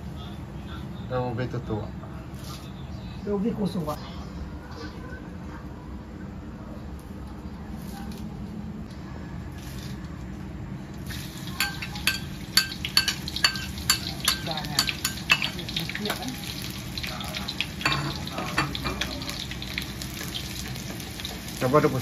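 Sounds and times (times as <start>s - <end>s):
hot oil spitting and sizzling: 11.0s - 22.0s.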